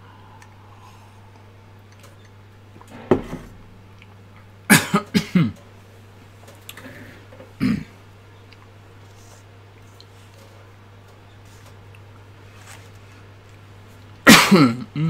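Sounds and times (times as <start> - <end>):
low steady hum: 0.0 - 15.0
man coughing: 4.7 - 5.6, 7.6 - 8.0, 14.3 - 15.0.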